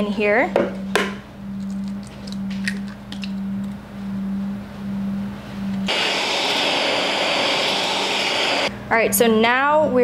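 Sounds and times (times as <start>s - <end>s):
steady low hum: 0.0s - 10.0s
egg cracking against glass bowl: 1.6s - 3.8s.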